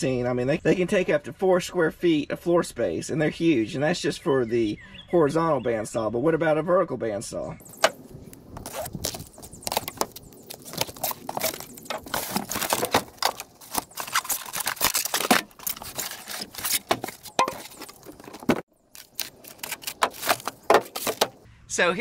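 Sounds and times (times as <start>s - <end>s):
cardboard box being opened: 7.8s - 21.4s
styrofoam blocks rustling and knocking: 8.6s - 21.4s.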